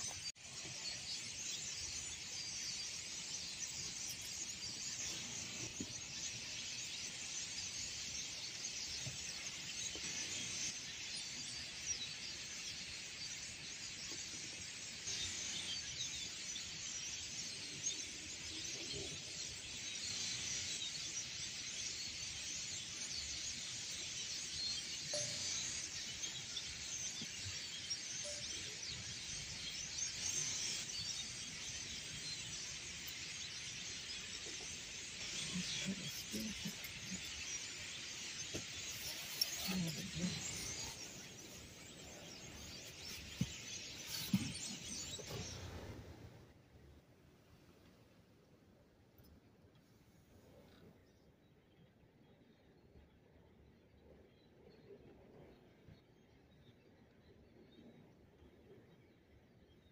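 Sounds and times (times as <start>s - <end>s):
starlings chattering: 0.0s - 46.0s.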